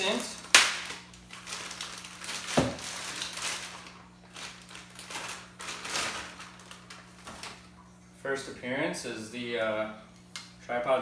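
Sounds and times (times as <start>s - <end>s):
plastic wrapping crinkling: 0.0s - 7.9s.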